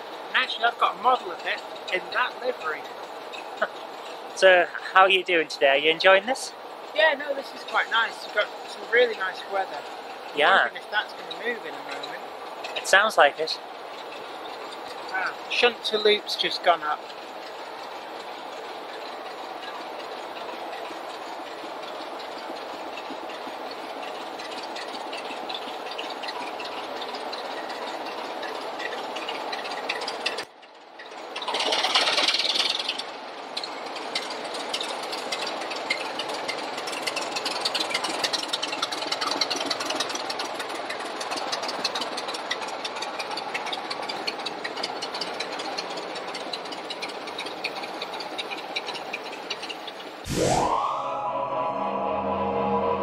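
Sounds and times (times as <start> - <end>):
diesel locomotive engine clattering: 0.0 - 50.8
hissing burst: 50.2 - 52.4.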